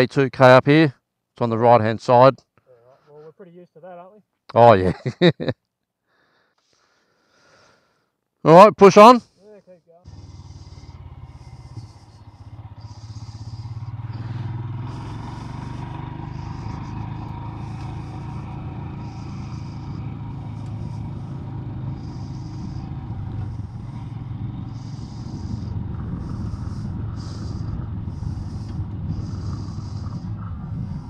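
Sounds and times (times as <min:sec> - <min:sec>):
motorcycle engine pulling away: 0:10.1 - 0:31.0
pulsing high hiss: 0:10.1 - 0:31.0.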